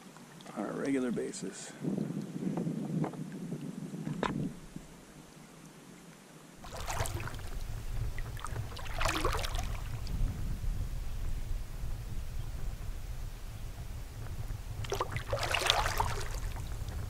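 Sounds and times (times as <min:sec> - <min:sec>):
low wind rumble on microphone: 0:00.8 - 0:05.5, 0:06.6 - 0:17.0
paddle splashing through water: 0:06.6 - 0:10.4, 0:14.7 - 0:17.0.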